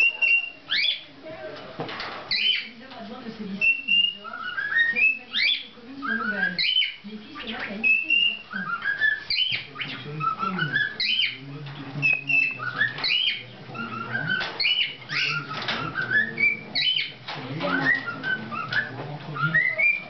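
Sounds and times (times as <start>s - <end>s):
cockatiel whistling song: 0.0s - 1.0s, 2.3s - 2.7s, 3.6s - 11.4s, 12.0s - 20.0s.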